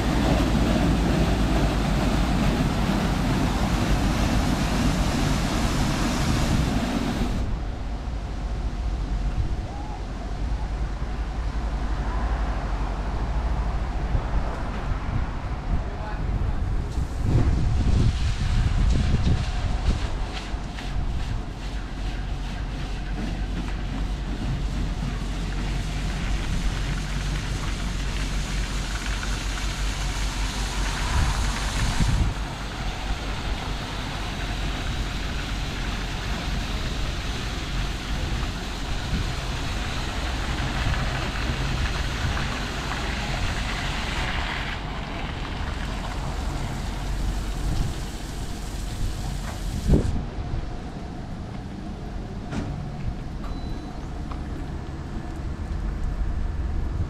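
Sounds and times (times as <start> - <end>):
foam and water hissing: 0.0 - 10.0, 16.9 - 50.4
car wash machine rumble: 0.0 - 53.4.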